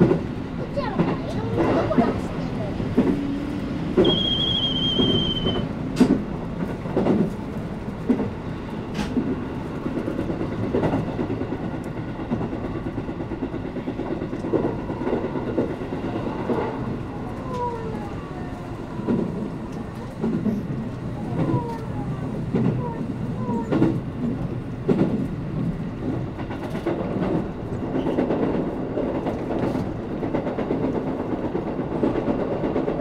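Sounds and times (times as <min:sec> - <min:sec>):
train rumble: 0:00.0 - 0:33.0
wheels clicking over rail joints: 0:00.0 - 0:33.0
high falling squeal: 0:04.0 - 0:05.7.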